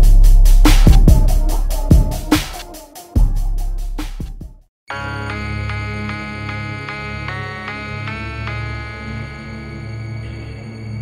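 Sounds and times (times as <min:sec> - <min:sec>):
low bass line: 0:00.0 - 0:02.4
bass drum hits: 0:00.0 - 0:02.6.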